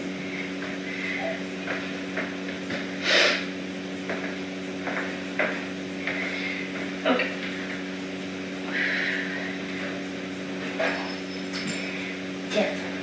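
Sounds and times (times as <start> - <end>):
steady electrical hum: 0.0 - 13.0
footsteps on vinyl floor: 0.4 - 0.9, 1.5 - 3.0, 3.7 - 8.0.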